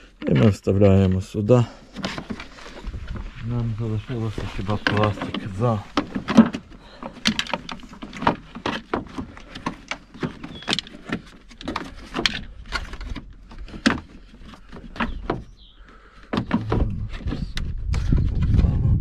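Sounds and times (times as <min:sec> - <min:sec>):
plastic clicks and knocks: 0:04.7 - 0:15.5.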